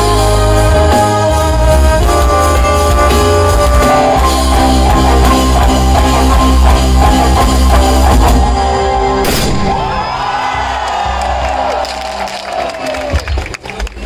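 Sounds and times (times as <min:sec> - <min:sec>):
rock band playing live: 0:00.0 - 0:11.7
sudden loud burst: 0:09.1 - 0:10.3.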